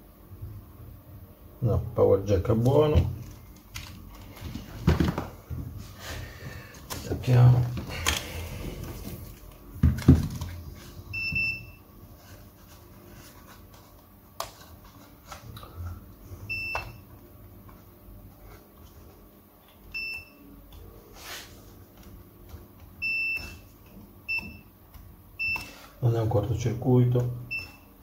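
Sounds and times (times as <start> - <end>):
multimeter beeps: 11.1 - 11.8, 16.5 - 17.1, 19.9 - 20.5, 23.0 - 23.6, 24.3 - 24.7, 25.4 - 25.8, 27.5 - 27.9.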